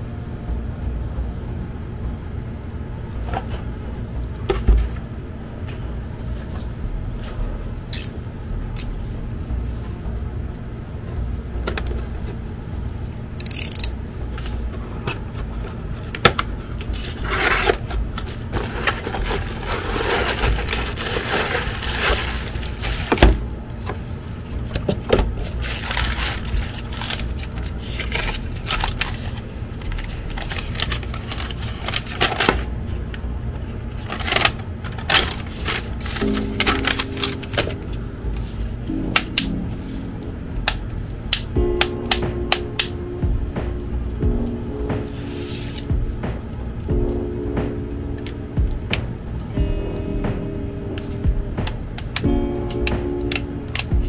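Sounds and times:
steady low hum: 0.0s - 54.0s
cardboard and plastic packaging rustling: 14.4s - 38.9s.

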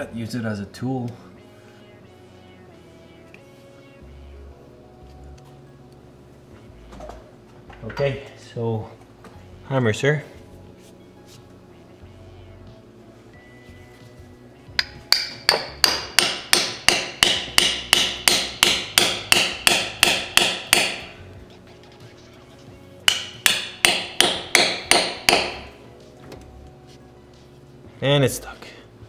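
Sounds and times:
hammer striking metal: 14.8s - 21.2s, 23.1s - 25.8s.

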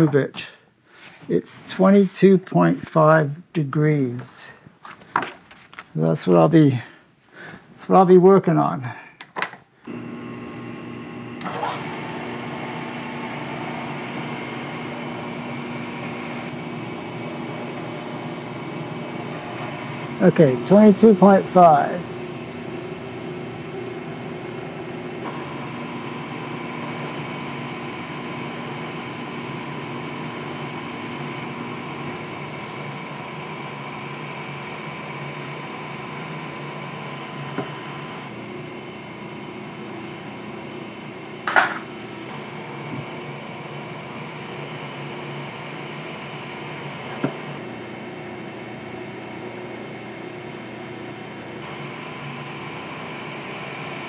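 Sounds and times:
milling machine hum: 9.8s - 54.0s.

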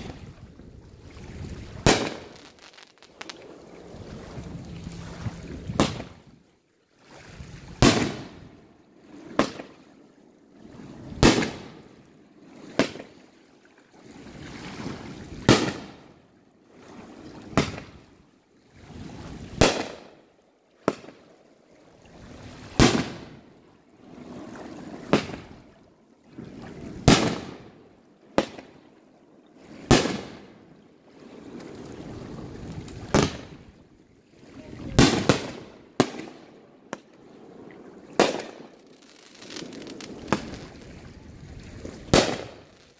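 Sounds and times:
fireworks bangs: 1.7s - 6.2s, 38.2s - 40.9s, 41.8s - 42.9s.

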